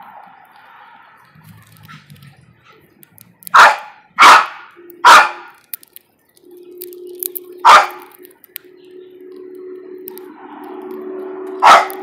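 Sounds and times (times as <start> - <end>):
dog barking: 3.5 - 5.6, 7.6 - 8.1, 11.6 - 12.0.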